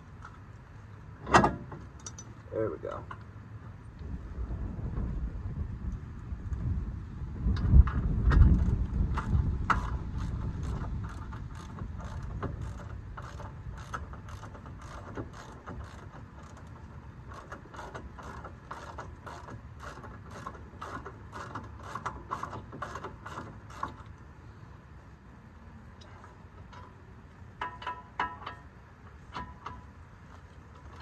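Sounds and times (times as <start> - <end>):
low rumble: 3.9 - 12.8.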